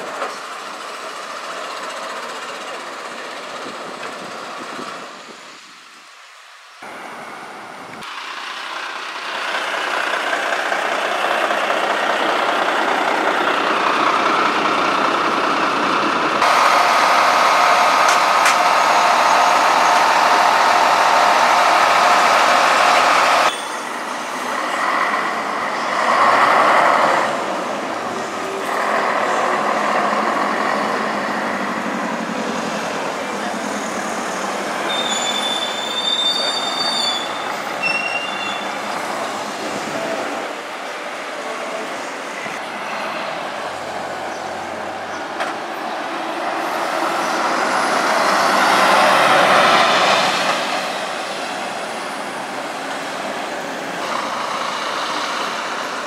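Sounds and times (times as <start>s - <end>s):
buses driving past: 0.0s - 56.0s
thin high squeal: 23.5s - 23.9s, 34.9s - 38.7s.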